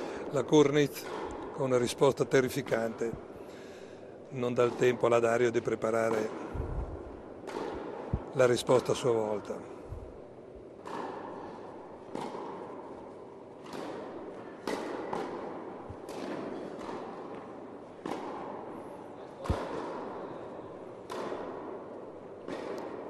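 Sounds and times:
tennis ball hits echoing: 0.9 - 1.5, 4.6 - 8.9, 9.7 - 23.0.

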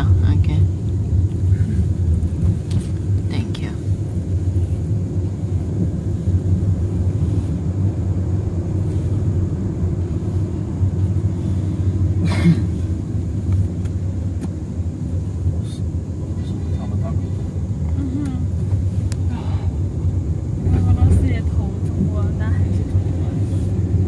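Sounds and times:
car engine and tyres rumbling: 0.0 - 24.0.

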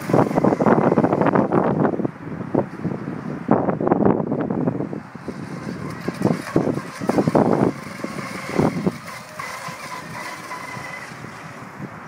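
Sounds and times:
boat motor high whine: 0.0 - 3.2, 4.4 - 12.0
wind buffeting microphone: 0.0 - 12.0.

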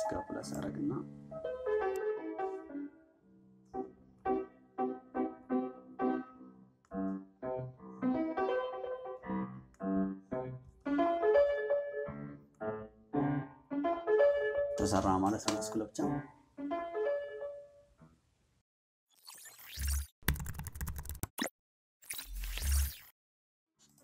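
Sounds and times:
piano music: 0.0 - 18.1.

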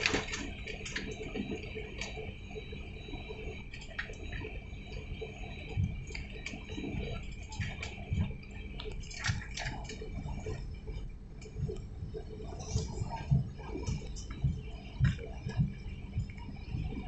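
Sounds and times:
airliner cabin low rumble: 5.7 - 17.0.

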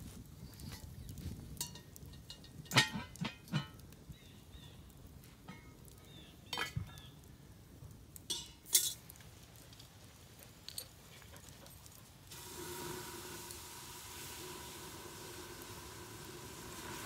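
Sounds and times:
metal clinking against pot: 1.6 - 3.8
steady hiss: 12.2 - 17.0.

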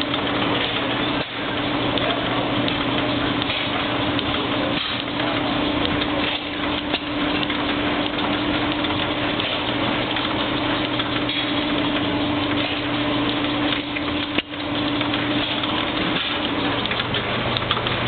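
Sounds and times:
stationary gas engines running: 0.0 - 18.0.

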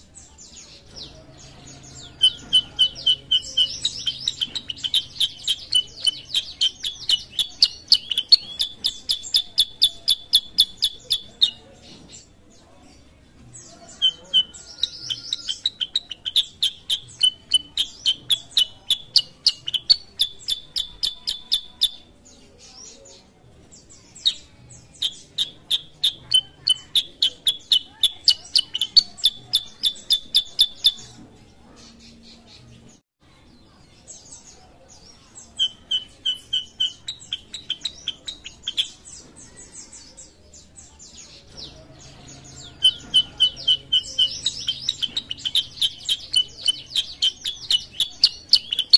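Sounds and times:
bulbul chirping rapidly: 2.0 - 11.6, 14.0 - 22.1, 25.0 - 31.1, 42.6 - 48.9.

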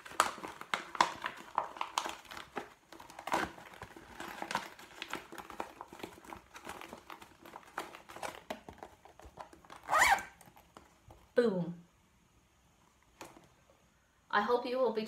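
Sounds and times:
plastic bag crinkling: 0.0 - 11.4.

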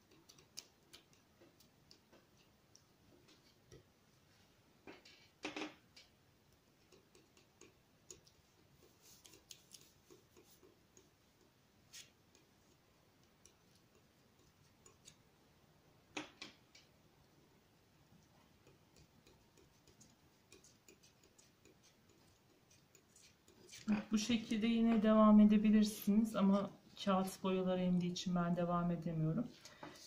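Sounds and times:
palette knife scraping paint: 6.9 - 15.2, 18.5 - 24.6.

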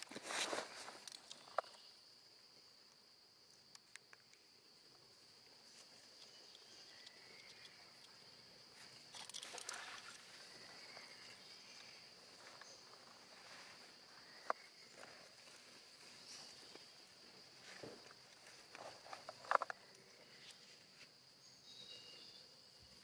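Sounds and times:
brief rustle: 0.0 - 1.8, 8.8 - 10.4
insects droning: 0.0 - 23.0.

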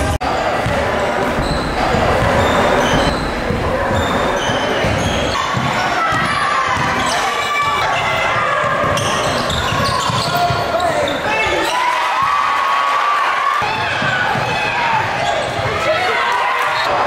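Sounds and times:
voices: 0.0 - 17.0
basketball bouncing: 0.6 - 10.9, 13.6 - 15.8
sneaker squeaks: 0.6 - 12.0.

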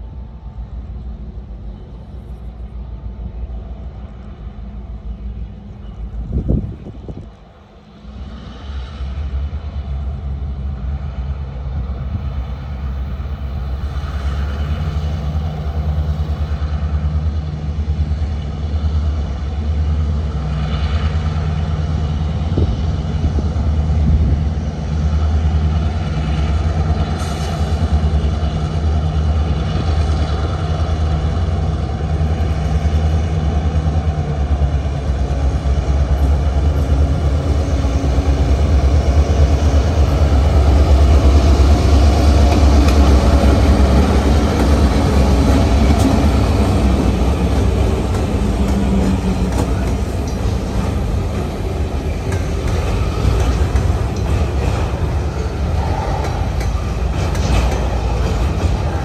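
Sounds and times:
diesel locomotives rumbling: 0.0 - 59.0
freight car wheels clacking over rail joints: 42.4 - 59.0.

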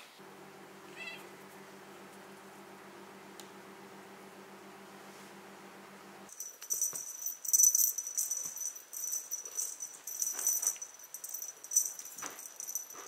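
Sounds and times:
faint steady hum: 0.0 - 13.0
cat toy jingling and rattling: 6.3 - 13.0.

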